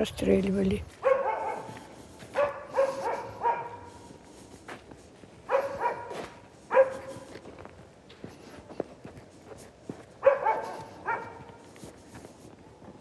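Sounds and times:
dog barking: 1.0s - 4.0s, 5.5s - 7.3s, 10.2s - 11.6s.

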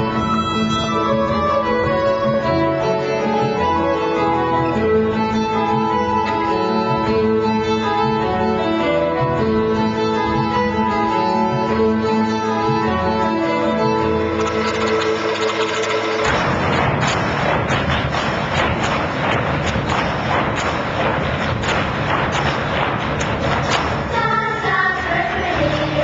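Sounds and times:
fiddle-led instrumental dance music: 0.0s - 26.0s.

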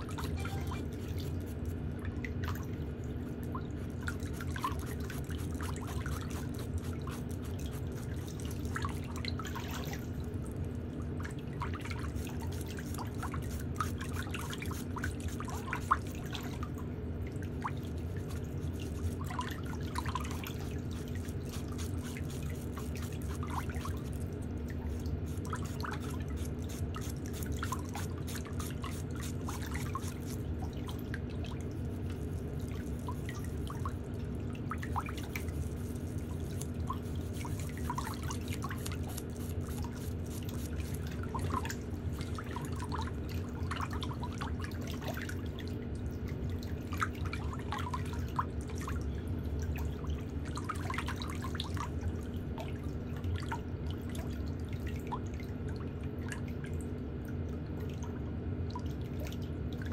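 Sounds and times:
steady low hum: 0.0s - 59.9s
nail file scratching: 4.2s - 8.7s, 20.3s - 24.2s, 25.2s - 30.4s, 35.2s - 41.5s.

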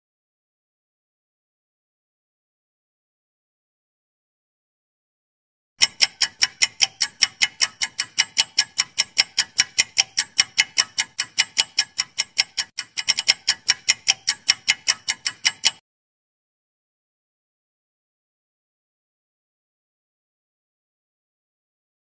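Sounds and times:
clock ticking: 5.8s - 15.8s.

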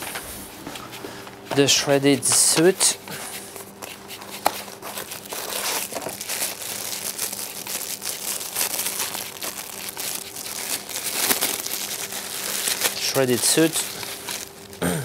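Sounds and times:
plastic bag crinkling: 3.7s - 14.8s.

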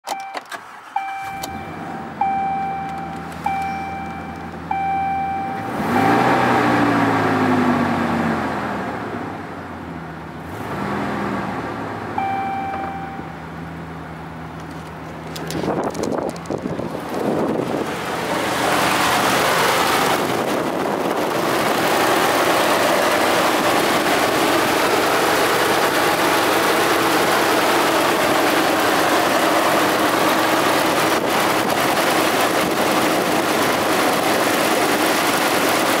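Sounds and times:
pickup engine idling: 11.9s - 36.0s.

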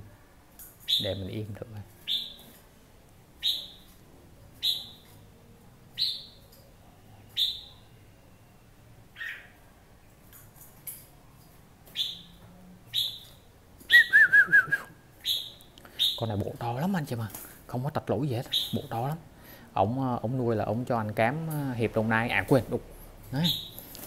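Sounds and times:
bird warbling: 2.0s - 2.5s, 9.2s - 9.6s, 18.4s - 19.0s
bird calling: 2.0s - 2.6s, 4.6s - 5.1s, 9.2s - 9.6s, 11.9s - 16.4s, 18.4s - 19.1s.

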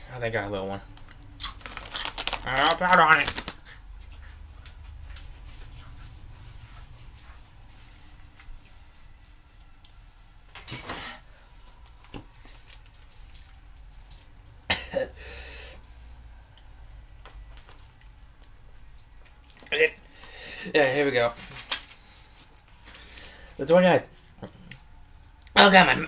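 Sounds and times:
man coughing: 14.7s - 15.2s.

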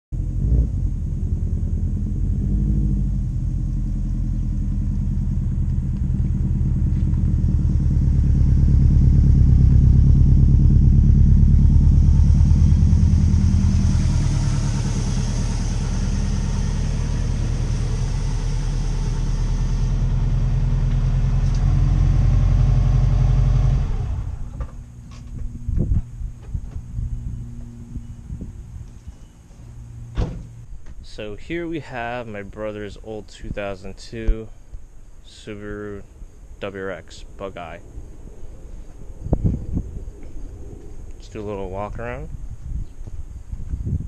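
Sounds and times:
car engine driving past: 0.2s - 25.7s.

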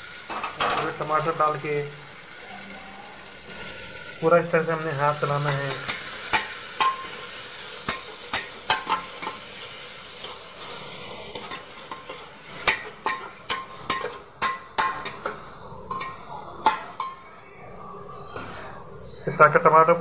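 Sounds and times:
food sizzling in hot oil: 0.0s - 17.3s
metal spatula scraping a pan: 10.2s - 17.2s.

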